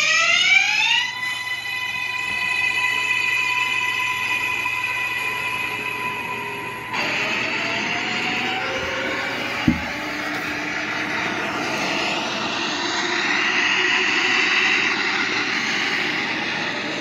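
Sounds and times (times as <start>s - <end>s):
subway train rumbling on rails: 3.8s - 17.0s
short thump: 9.6s - 10.1s.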